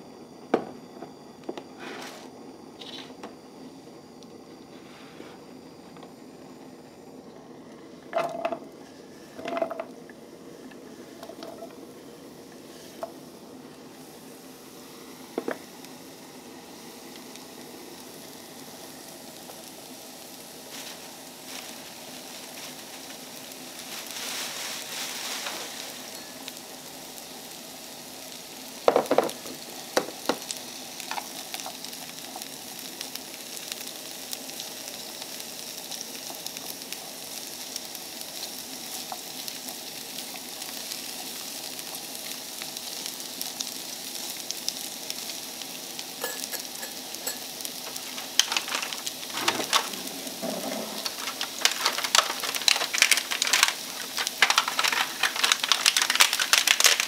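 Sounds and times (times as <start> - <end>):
carrots sizzling in oil: 1.7 - 57.0
carrots knocking into pan: 28.9 - 30.5.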